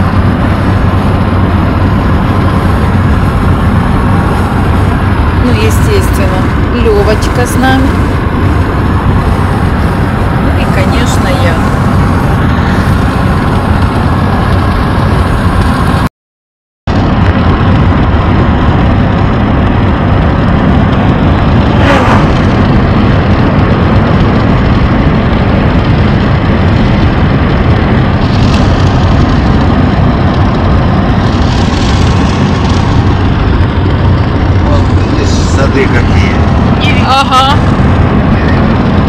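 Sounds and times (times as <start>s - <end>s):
car cabin road and engine noise: 0.0s - 16.1s, 16.9s - 39.0s.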